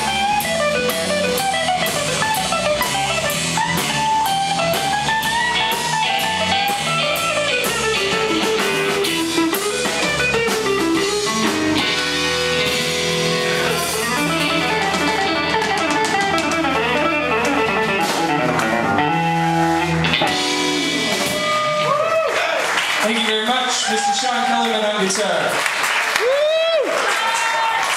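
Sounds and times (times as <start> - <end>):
electric guitar lines: 0.0 - 22.0
live blues band playing: 0.0 - 23.3.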